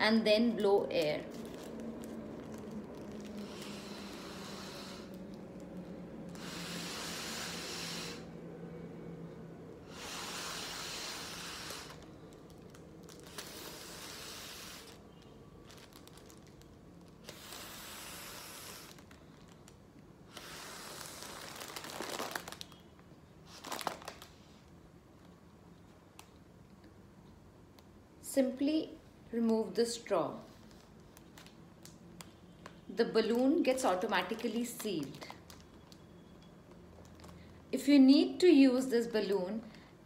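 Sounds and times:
foil balloon crinkling: 0.8 - 5.8, 9.9 - 22.9, 23.5 - 24.5, 30.6 - 32.3, 33.2 - 36.1
breath puffs through straw: 3.3 - 5.3, 9.9 - 12.1, 13.3 - 15.0.

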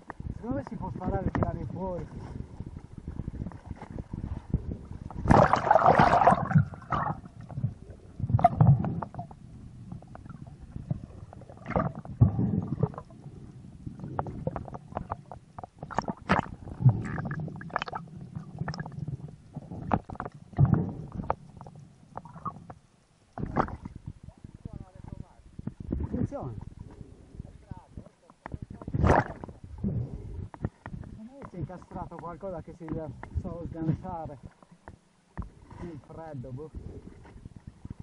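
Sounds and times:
underwater bubbling: 0.0 - 38.0
underwater rumbles: 0.0 - 38.0
water splashing: 5.2 - 9.4, 10.0 - 22.7, 23.3 - 27.0, 27.6 - 29.8.

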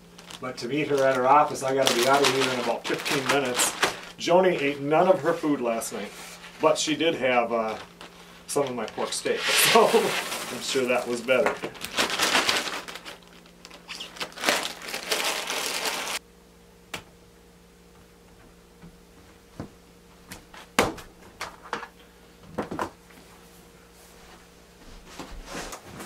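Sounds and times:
material crinkling and rustling: 0.0 - 16.2
faint steady hum: 0.0 - 26.0.

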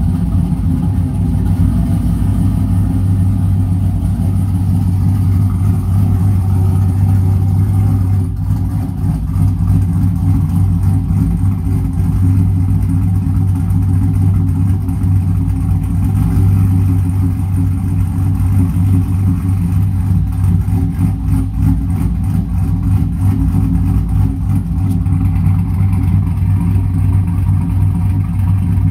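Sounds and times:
engine idling with choppy rhythm: 0.0 - 28.9.

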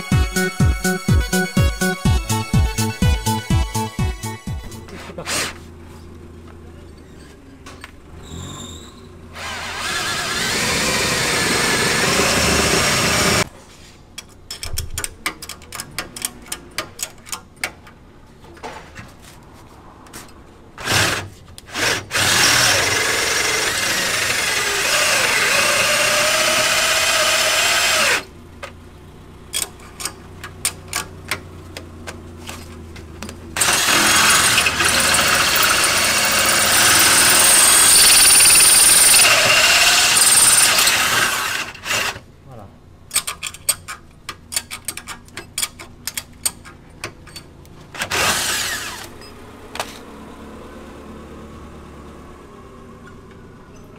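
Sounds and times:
power drill boring through steel: 9.3 - 13.5, 20.8 - 28.3, 33.6 - 42.2, 48.0 - 49.2.

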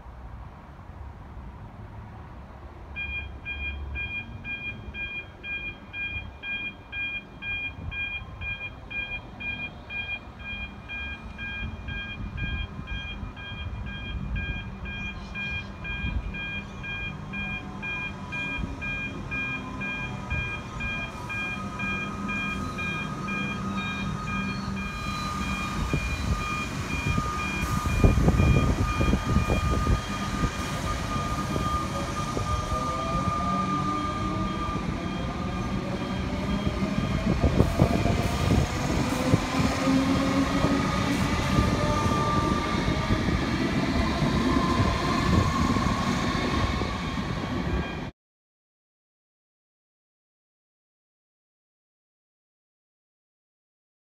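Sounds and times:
railway crossing bells ringing: 3.0 - 37.2.

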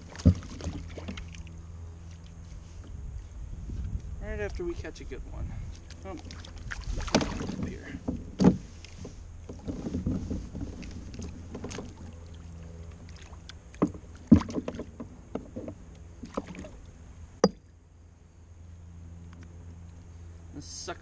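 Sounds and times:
steady low rumble: 0.0 - 14.4
knocks and clicks of fishing gear: 7.0 - 12.0, 13.7 - 16.7.

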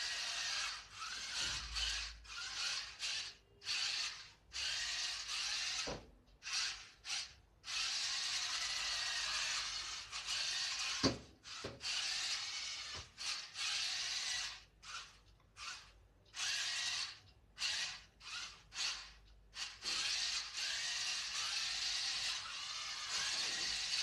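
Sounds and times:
toy car motors whirring: 0.0 - 24.0.

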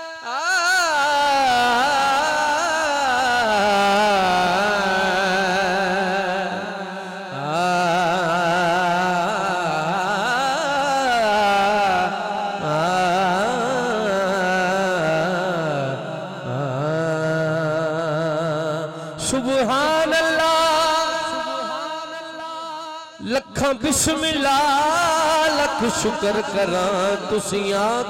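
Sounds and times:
man singing into a microphone: 0.0 - 28.0.

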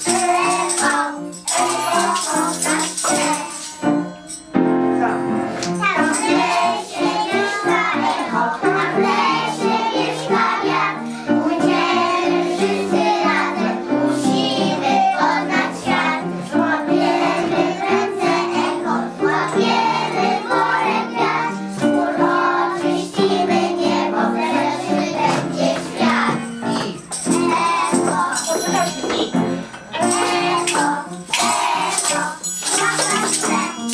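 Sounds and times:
instrumental accompaniment: 0.0 - 33.9
children singing in chorus: 6.0 - 28.5.

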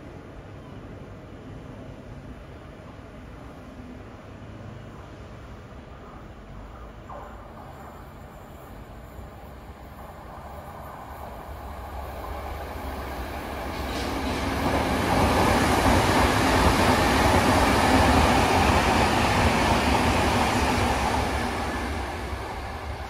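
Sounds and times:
train wheels rushing on rail: 6.0 - 23.0.

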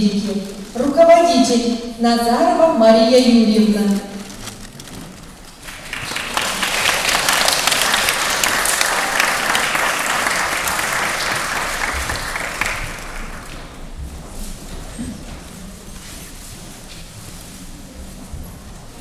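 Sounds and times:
audience applauding: 5.6 - 13.9.

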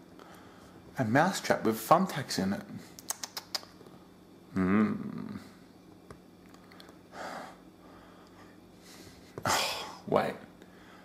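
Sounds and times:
faint steady hum: 0.0 - 11.0
mouth clicks: 3.0 - 3.9
man's low vocal sound: 4.5 - 5.6.

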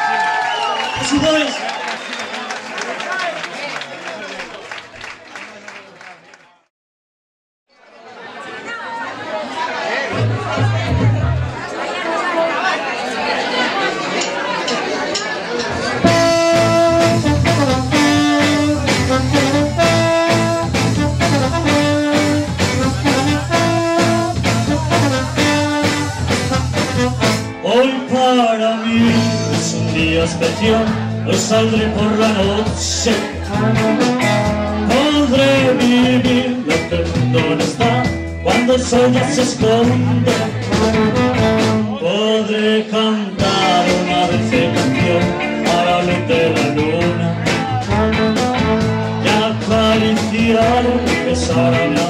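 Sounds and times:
live band playing: 10.1 - 12.9, 14.4 - 42.2, 43.3 - 52.0.

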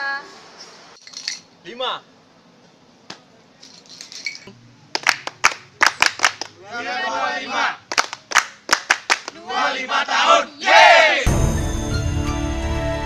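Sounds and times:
people clapping: 4.9 - 6.6, 7.8 - 9.4
voices calling out together: 6.6 - 7.9, 9.3 - 11.3.

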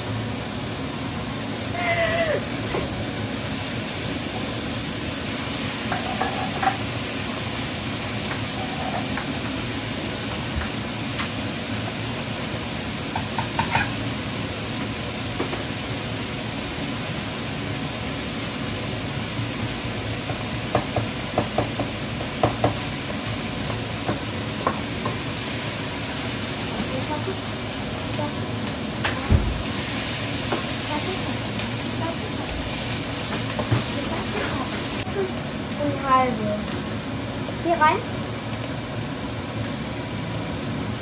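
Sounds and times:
food sizzling in a frying pan: 0.0 - 41.0
utensil knocking against pan: 13.2 - 13.9, 20.3 - 22.8.

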